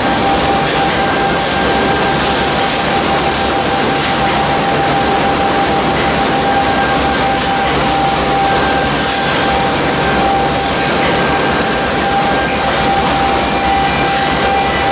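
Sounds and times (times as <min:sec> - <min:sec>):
conveyor machinery din: 0:00.0 - 0:14.9
high-pitched machine hum: 0:00.0 - 0:14.9.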